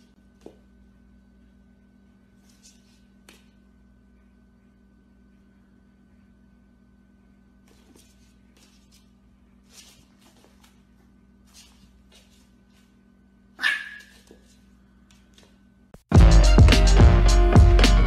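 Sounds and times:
puppy yipping: 13.6s - 14.3s
loud electronic music: 16.1s - 18.0s.

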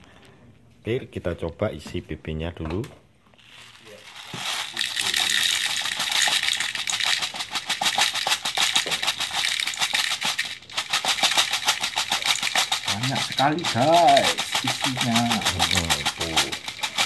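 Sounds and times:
plastic pellets pouring rattle: 3.4s - 17.0s.

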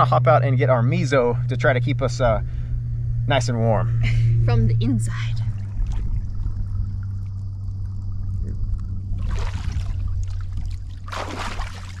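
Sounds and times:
steady low hum: 0.0s - 12.0s
water splashing: 5.3s - 12.0s.

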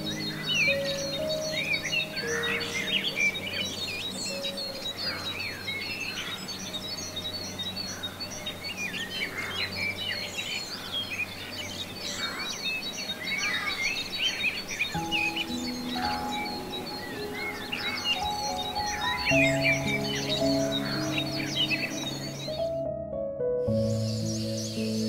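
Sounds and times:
birds chirping and whistling: 0.0s - 23.0s, 23.6s - 25.0s.

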